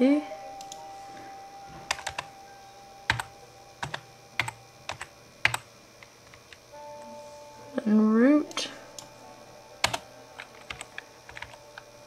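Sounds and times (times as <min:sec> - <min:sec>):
keyboard keystrokes: 0:01.9 - 0:02.3, 0:09.8 - 0:11.9.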